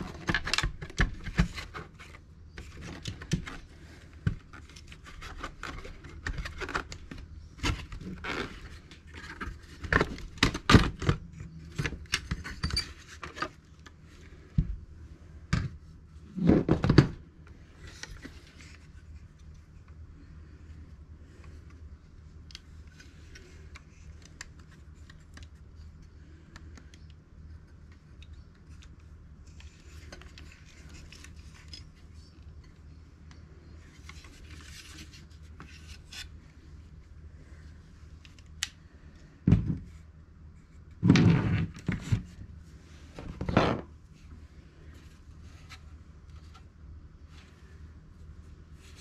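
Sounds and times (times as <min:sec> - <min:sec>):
hands handling plastic radio: 0:00.0 - 0:14.8, 0:16.4 - 0:40.0.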